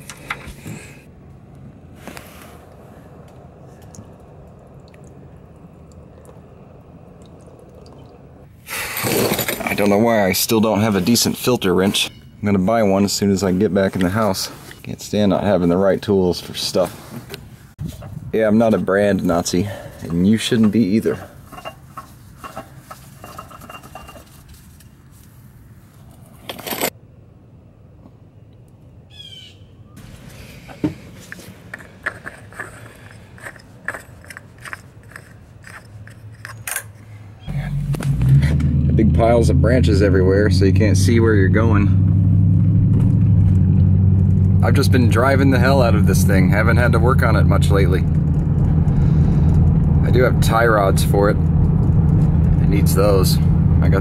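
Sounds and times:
faint drips and ticks: 3.3s - 8.2s
bird chirps: 12.0s - 12.4s, 29.1s - 30.0s.

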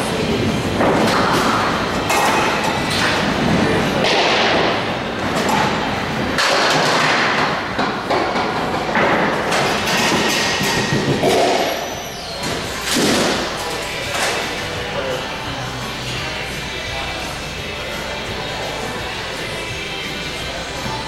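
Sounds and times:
bowling balls rolling and thudding: 0.1s - 14.6s.

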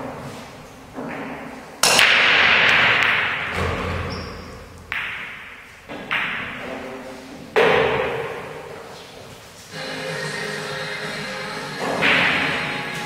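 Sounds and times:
sharp knocks of pool balls: 1.0s - 4.1s, 4.9s - 6.8s, 7.6s - 8.7s, 11.8s - 12.6s
pool balls scattering: 11.8s - 13.0s.

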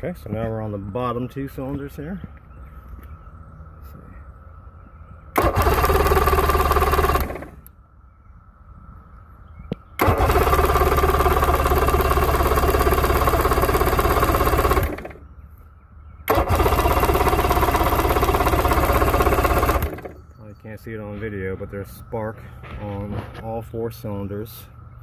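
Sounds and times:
outboard engine cranking on starter: 5.3s - 7.7s, 10.0s - 15.3s, 16.2s - 20.2s.

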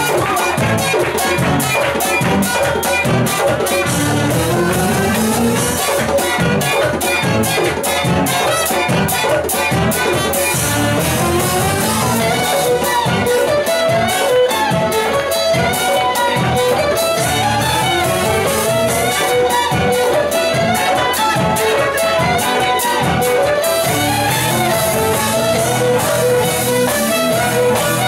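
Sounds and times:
tuba: 0.0s - 13.2s, 23.2s - 28.0s
fiddles playing melody: 0.0s - 28.0s
folk ensemble playing dance tune: 0.0s - 28.0s.

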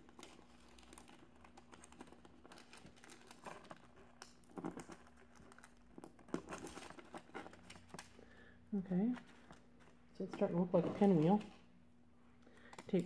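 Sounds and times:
foil crinkling and clicks: 0.0s - 8.5s, 12.4s - 13.0s.

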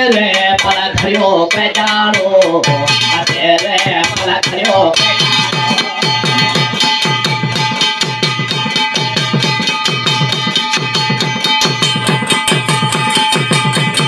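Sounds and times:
fast drum rhythm: 0.0s - 14.0s
ringing brass plate: 2.6s - 14.0s.

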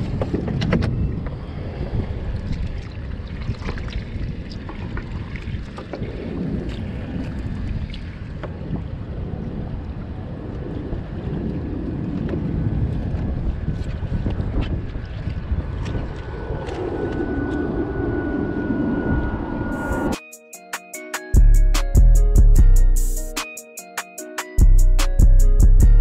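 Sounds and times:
wind buffeting microphone: 0.0s - 20.1s.

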